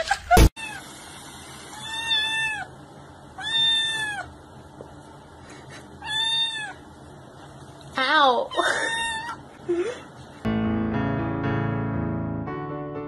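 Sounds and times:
kitten meowing: 1.8 - 2.7, 3.4 - 4.3, 6.0 - 6.8, 8.6 - 9.4.

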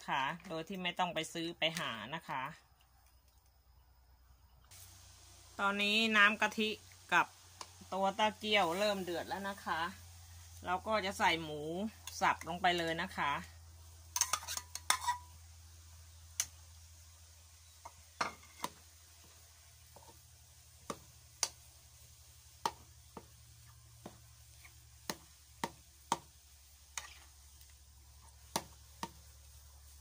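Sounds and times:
metal spatula scraping a wok: 14.1 - 15.4, 18.2 - 18.8, 26.1 - 30.0.

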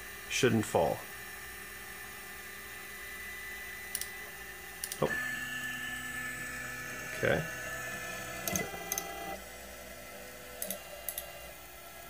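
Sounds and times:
stepper motors whining: 3.0 - 11.8.

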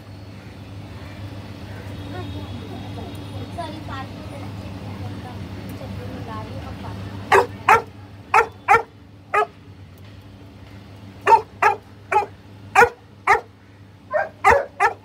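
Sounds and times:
dog barking: 7.3 - 9.6, 11.2 - 13.5, 14.1 - 15.0.

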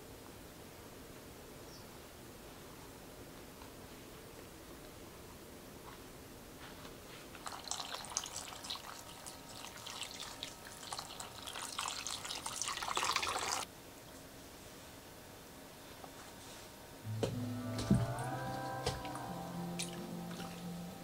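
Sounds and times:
water pouring into glass bowl: 7.4 - 13.6.

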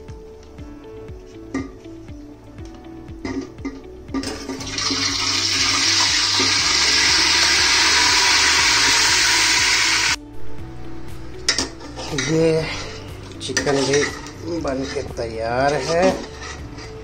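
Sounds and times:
chicken sizzling in hot oil: 4.2 - 10.2
spoon scraping bowl: 11.6 - 17.0.

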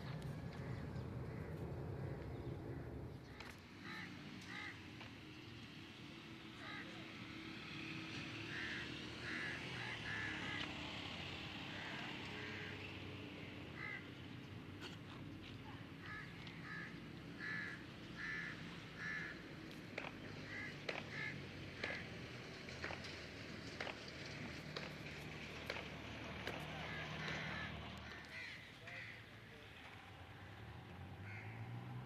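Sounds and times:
crows cawing: 0.3 - 5.1, 6.5 - 7.3, 8.1 - 11.0, 11.6 - 14.3, 16.0 - 22.1, 26.4 - 31.8.

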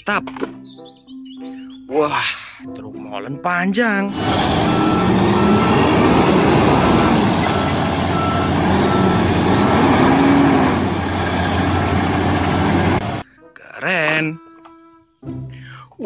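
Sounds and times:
diesel truck engine running: 4.1 - 13.2
reversing alarm beeping: 4.1 - 13.6.

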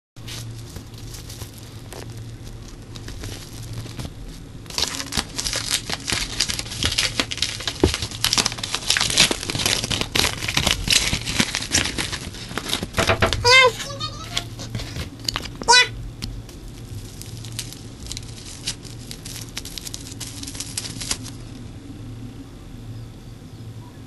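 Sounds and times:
paper packaging tearing and crackling: 0.2 - 21.6.

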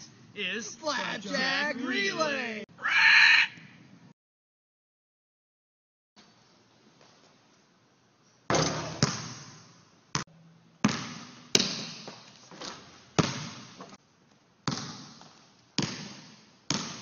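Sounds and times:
basketball bouncing on wooden floor: 8.5 - 9.6, 10.8 - 14.0, 14.6 - 17.0.

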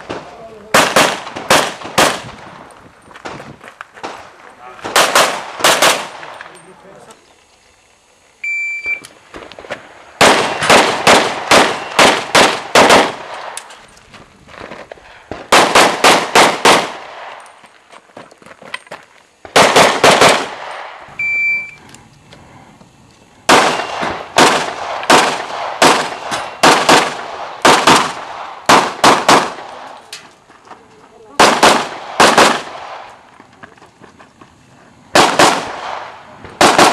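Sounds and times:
rapid handgun shots: 0.0 - 2.4, 4.8 - 6.3, 10.2 - 13.6, 15.3 - 17.4, 19.5 - 21.1, 23.5 - 30.0, 31.4 - 33.1, 35.1 - 36.9
electronic shot-timer beep: 8.4 - 9.1, 21.2 - 21.8.

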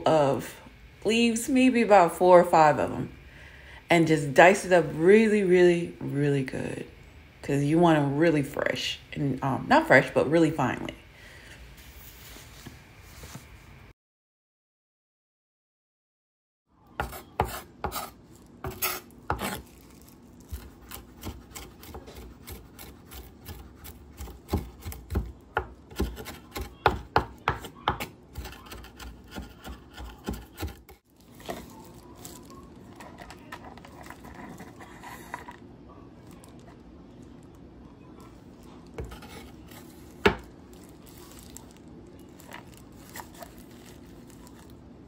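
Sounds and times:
knife chopping on wooden board: 17.0 - 19.6, 20.5 - 31.6.

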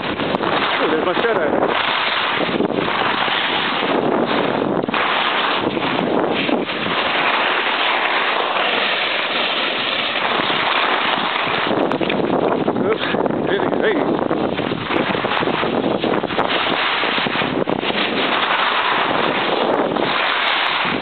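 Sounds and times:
skis scraping on snow: 0.0 - 21.0
wind on microphone: 0.0 - 21.0.

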